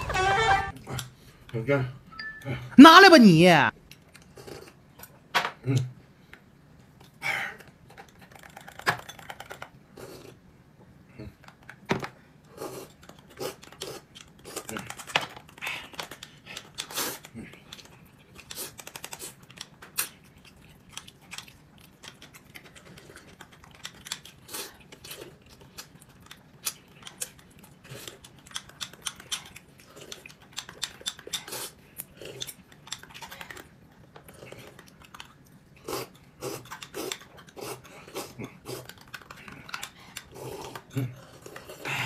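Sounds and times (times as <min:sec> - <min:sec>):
person chewing and crunching: 0:12.5 - 0:42.0.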